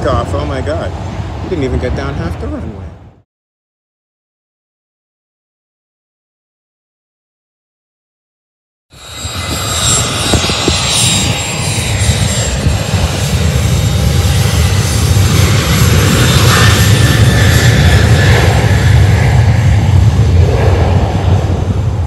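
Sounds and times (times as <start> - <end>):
jet engine high whine: 0.0 - 3.2, 8.9 - 22.0
jet engine low rumble: 0.0 - 3.3, 8.9 - 22.0.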